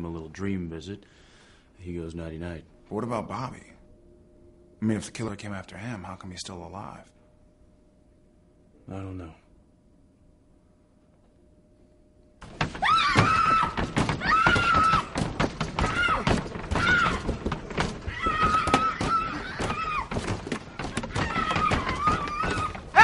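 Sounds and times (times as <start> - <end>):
heavy pounding on a door: 12.4 - 23.0
high-pitched wailing cry: 21.1 - 23.0.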